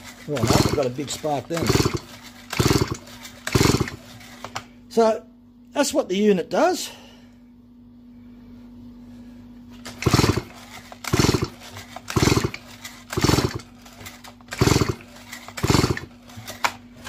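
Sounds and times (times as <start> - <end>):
chainsaw recoil starter whirr: 0.0 - 4.6, 9.8 - 16.8.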